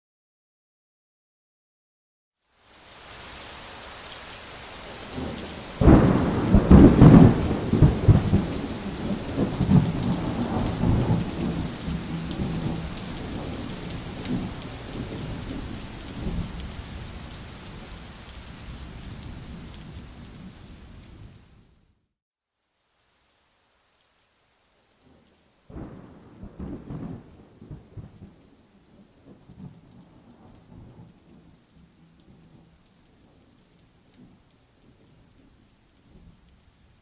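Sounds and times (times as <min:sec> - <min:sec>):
steady rain: 0:02.4 - 0:37.0
thunderclap: 0:05.2 - 0:16.6
rolling thunder: 0:05.2 - 0:17.0, 0:25.7 - 0:28.4.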